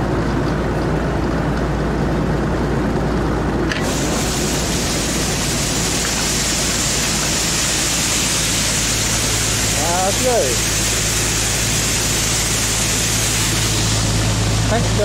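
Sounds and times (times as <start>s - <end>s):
diesel combine engine running: 0.0s - 15.0s
grain pouring hiss: 3.7s - 15.0s.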